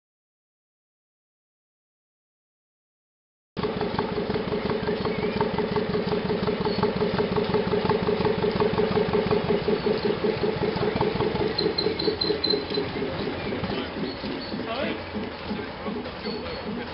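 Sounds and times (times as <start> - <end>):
boat diesel engine chugging: 3.6 - 16.9.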